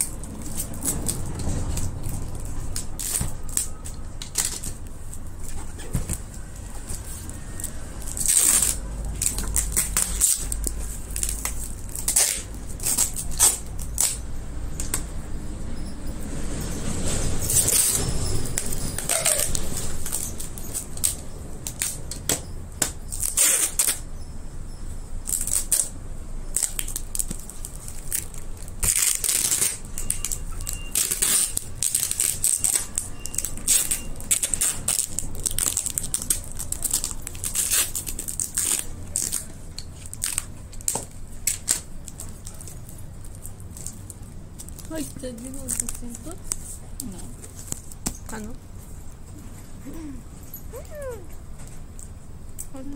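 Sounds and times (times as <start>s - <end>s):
packing tape ripping: 0.0s - 14.2s, 17.4s - 18.0s, 18.6s - 24.0s, 25.3s - 46.8s
plastic film crinkling: 0.0s - 14.3s, 25.2s - 48.6s.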